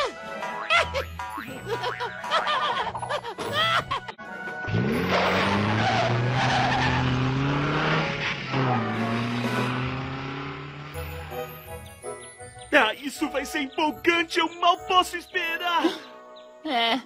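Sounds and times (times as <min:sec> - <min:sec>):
music: 0:00.0 - 0:05.1, 0:10.9 - 0:17.0
tyres skidding on dirt: 0:04.4 - 0:12.3
car engine revving: 0:04.6 - 0:11.5.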